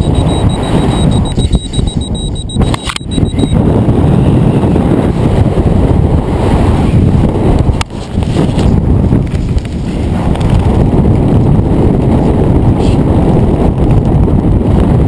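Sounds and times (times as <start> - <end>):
loud wind rush on microphone: 0.0 - 15.0
sharp parachute flaps: 7.6 - 11.0.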